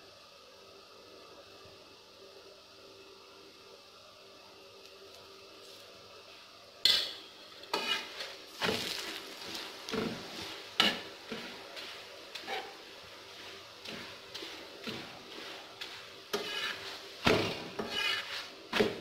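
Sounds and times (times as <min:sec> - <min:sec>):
oil sizzling: 0:05.0 - 0:19.0
metal spatula clattering and scraping: 0:06.9 - 0:12.8, 0:13.4 - 0:19.0.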